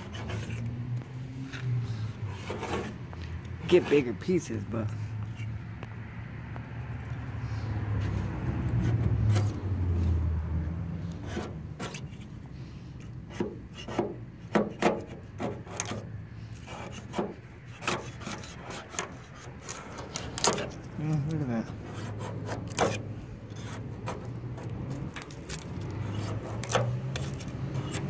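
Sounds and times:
scraper scraping paint off steel: 0.0s - 0.7s, 2.3s - 3.0s, 11.1s - 12.3s, 13.0s - 28.0s.

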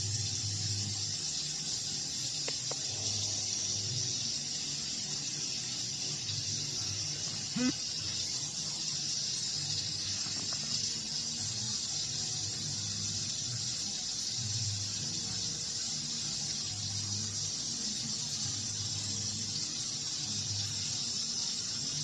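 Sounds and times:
rain hissing: 0.0s - 17.2s.

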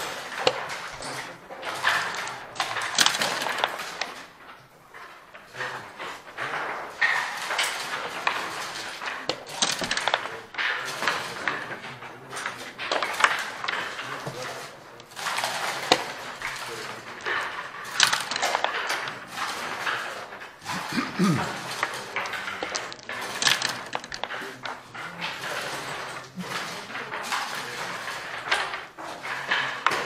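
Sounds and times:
checkers clacking onto board: 0.0s - 30.0s
dice clattering: 1.8s - 4.2s, 7.0s - 10.3s, 15.0s - 24.4s.

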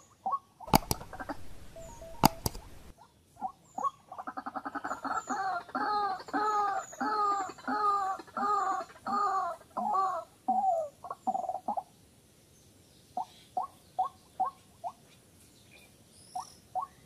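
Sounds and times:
waterhen croaking calls: 0.0s - 11.9s
sharp clicks: 0.7s - 2.9s.

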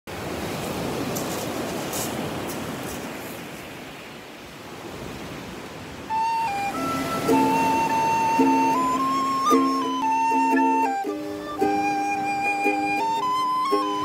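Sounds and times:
waves washing onto pebble beach: 0.1s - 9.4s.

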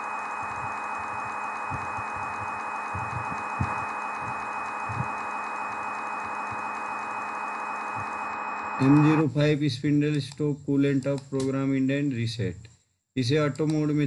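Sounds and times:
thin high whine: 0.0s - 9.4s
soft low thumps: 1.7s - 5.1s.

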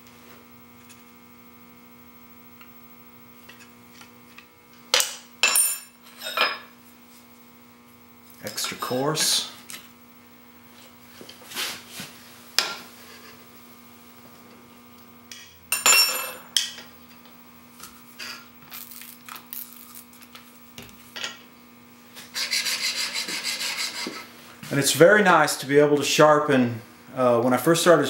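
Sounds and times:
chisel rubbing on sharpening stone: 22.3s - 24.3s.

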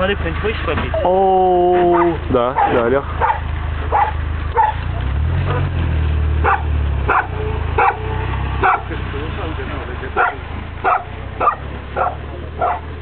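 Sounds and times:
dog barking: 1.9s - 4.8s, 5.5s - 5.8s, 6.4s - 8.9s, 10.2s - 13.0s.

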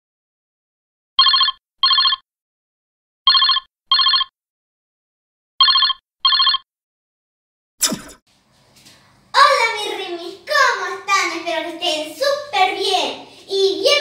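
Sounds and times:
telephone ringing: 1.2s - 2.2s, 3.3s - 4.3s, 5.6s - 6.7s.

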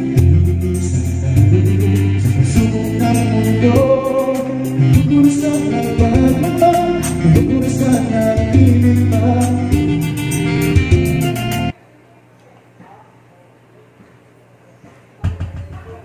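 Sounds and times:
karaoke song singing: 0.0s - 11.7s.

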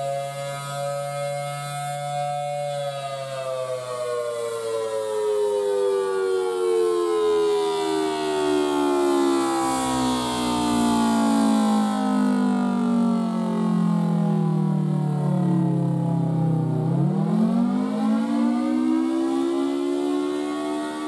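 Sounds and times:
mechanical warning siren wailing: 0.0s - 21.0s.

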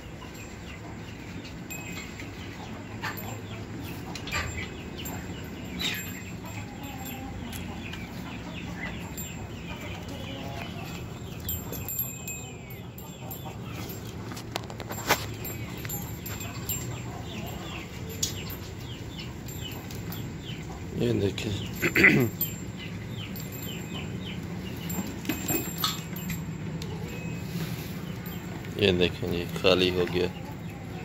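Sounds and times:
bird calls and chirps: 0.0s - 31.0s
clinks against steel bowl: 8.7s - 20.8s, 21.6s - 27.4s.

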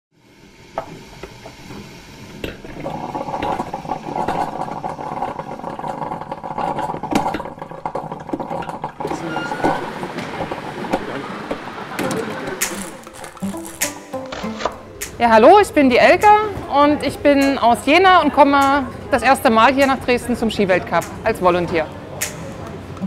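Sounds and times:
steady machine hum: 0.2s - 23.0s.

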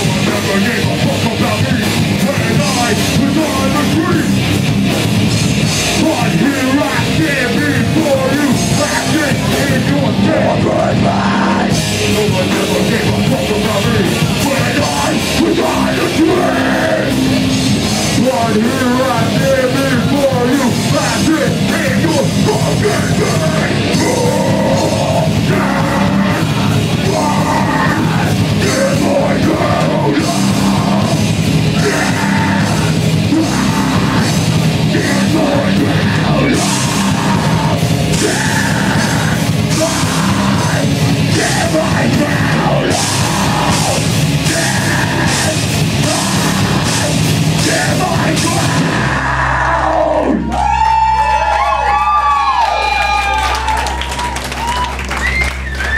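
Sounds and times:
heavy metal band playing: 0.0s - 55.9s
person yelling vocals: 18.3s - 50.5s.

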